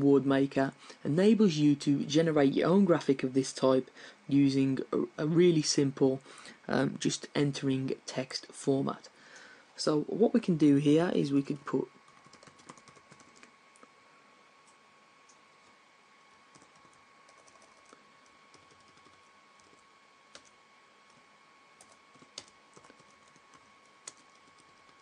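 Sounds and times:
computer keyboard keystrokes: 12.1s - 13.5s, 16.5s - 20.5s, 21.8s - 25.0s.

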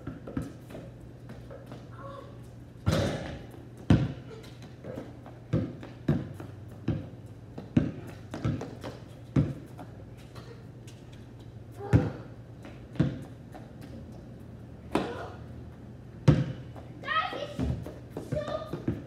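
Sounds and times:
basketball bouncing on concrete: 0.0s - 0.8s, 2.8s - 9.9s, 11.8s - 13.6s, 16.2s - 16.8s, 17.5s - 19.0s.

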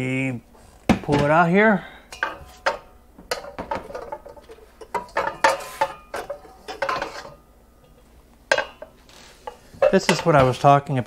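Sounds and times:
wok scraping: 2.1s - 10.6s
pots and pans clanking: 2.1s - 10.7s.

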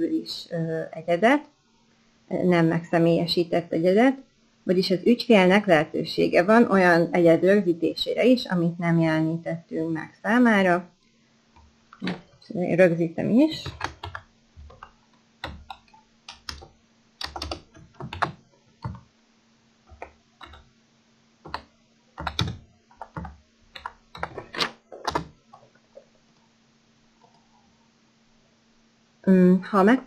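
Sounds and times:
typing on keyboard: 13.6s - 19.0s, 19.9s - 20.7s, 21.5s - 25.4s.

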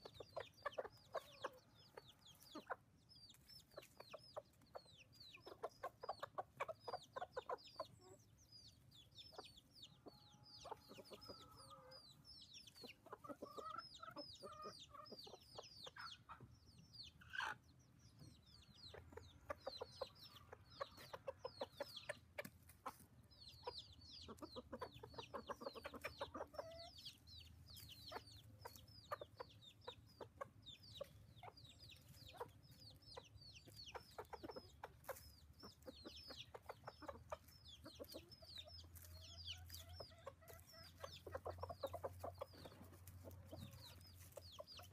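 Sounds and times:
chicks peeping: 0.0s - 44.9s
hens and rooster clucking: 0.0s - 44.9s
rapid low clucking: 27.8s - 44.9s.

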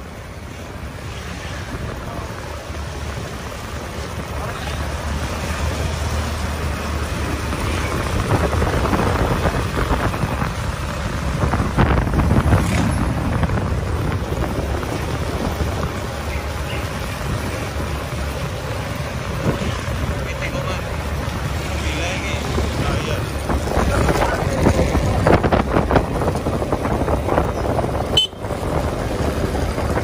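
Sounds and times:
motorcycle engine running: 1.8s - 30.0s
wind noise on microphone: 7.2s - 16.4s, 22.5s - 30.0s.

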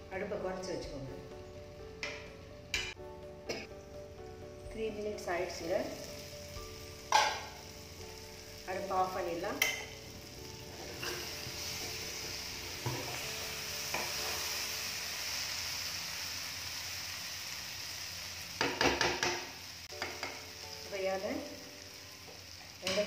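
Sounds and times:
food sizzling in a pan: 3.6s - 23.0s
spatula scraping a pan: 10.7s - 13.2s.

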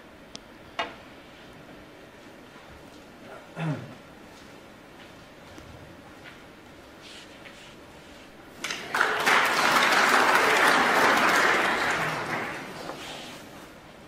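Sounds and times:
audience applauding: 8.6s - 13.2s.

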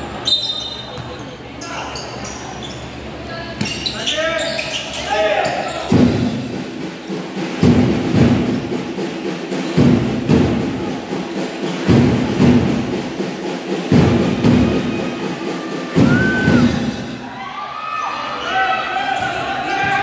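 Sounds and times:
short high squeak: 0.2s - 5.9s
booming drum beats echoing: 5.9s - 17.3s.

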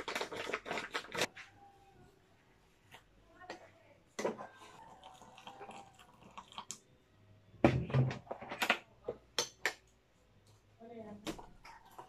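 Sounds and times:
plastic jug knocking and rattling: 7.6s - 8.7s.

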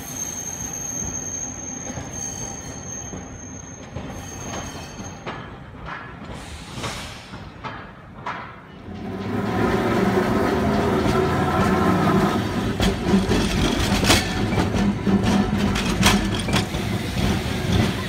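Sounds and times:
wheels clacking on track: 2.9s - 18.0s
streetcar humming past: 8.8s - 18.0s.

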